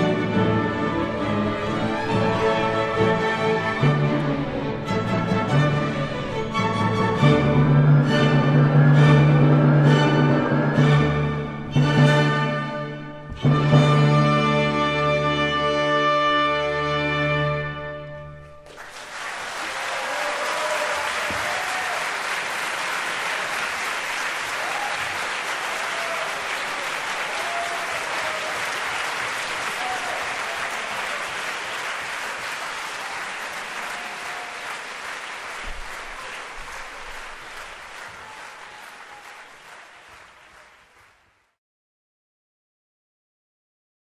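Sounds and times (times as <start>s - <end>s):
audience applauding: 18.6s - 41.6s.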